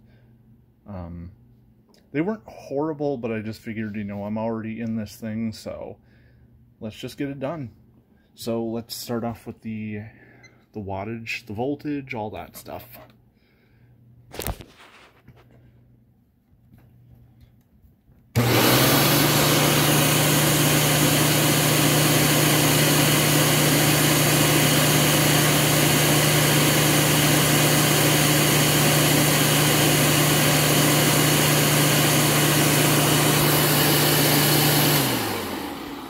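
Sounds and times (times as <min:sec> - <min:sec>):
vacuum cleaner running: 0:18.4 - 0:36.0
vacuum motor spinning down: 0:18.4 - 0:36.0.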